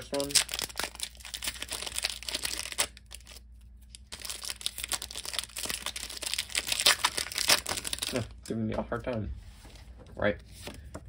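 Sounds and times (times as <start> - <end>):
foil wrapper crinkling and tearing: 0.0 - 8.5.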